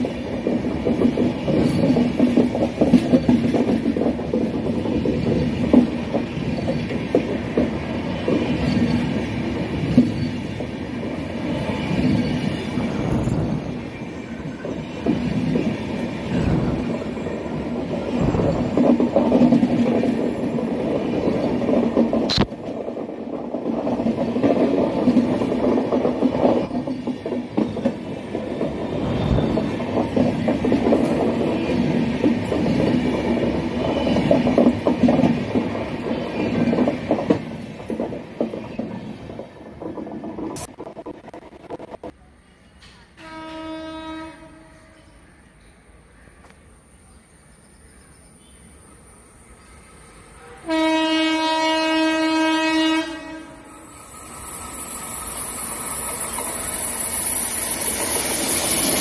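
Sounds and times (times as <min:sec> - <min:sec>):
train coaches rumbling past: 0:00.0 - 0:59.0
wheels knocking on rails: 0:00.3 - 0:09.2
sharp click: 0:22.3 - 0:22.6.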